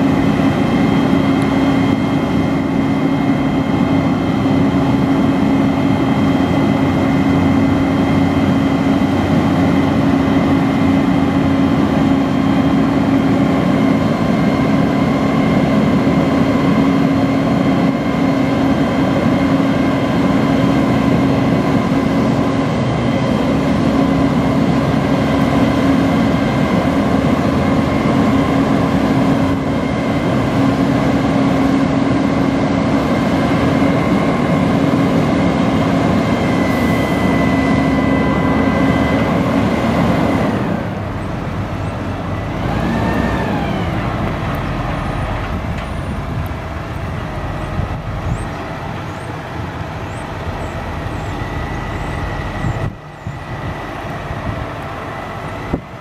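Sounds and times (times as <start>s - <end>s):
high hydraulic whines: 0.0s - 56.0s
truck diesel engine running: 0.0s - 56.0s.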